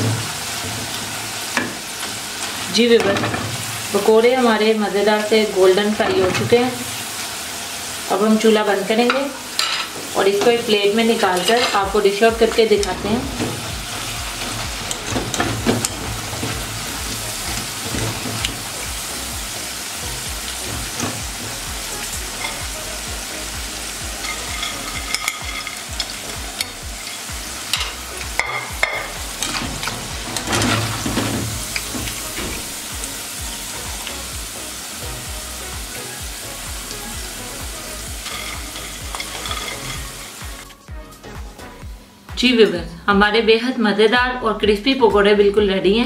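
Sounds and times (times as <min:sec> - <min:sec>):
food deep-frying in hot oil: 0:00.0 - 0:40.8
skimmer scraping metal pot: 0:38.2 - 0:40.4.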